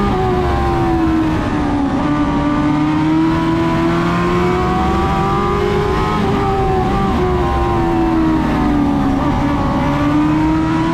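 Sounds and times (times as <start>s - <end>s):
race car engine running: 0.0s - 10.9s.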